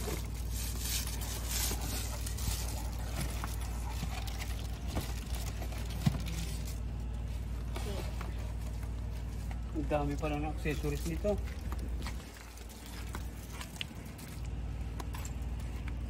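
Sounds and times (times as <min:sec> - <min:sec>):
cardboard rustling and scraping: 0:00.0 - 0:09.5
steady low rumble: 0:00.0 - 0:16.0.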